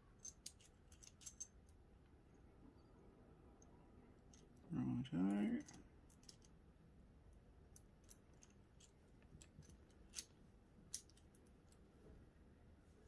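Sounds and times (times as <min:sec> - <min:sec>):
small metallic clicks: 0:00.2 - 0:01.8, 0:05.6 - 0:06.6, 0:07.7 - 0:11.8.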